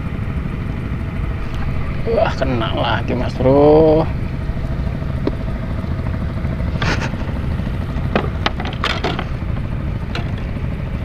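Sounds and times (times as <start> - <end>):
sharp knocks and crackles: 4.3 - 10.7.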